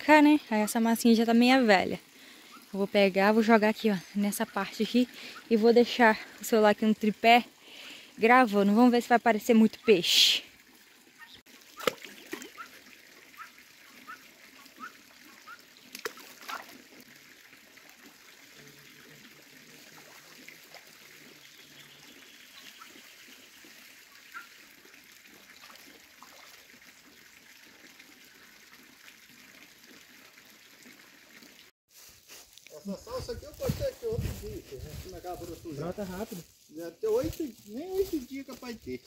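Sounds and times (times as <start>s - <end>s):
water trickling: 0.0s - 31.7s
water plops and drips: 10.5s - 31.7s.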